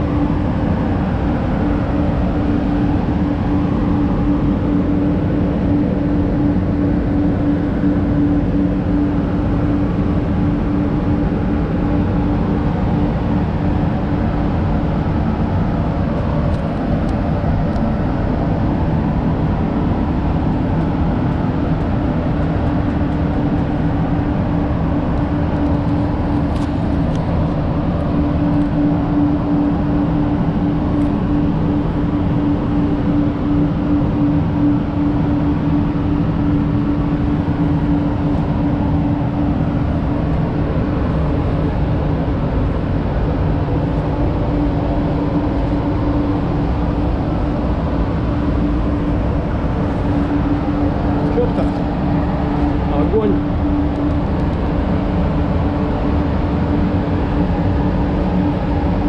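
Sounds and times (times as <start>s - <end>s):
low fan hum: 0.0s - 59.0s
rush of moving air: 0.0s - 59.0s.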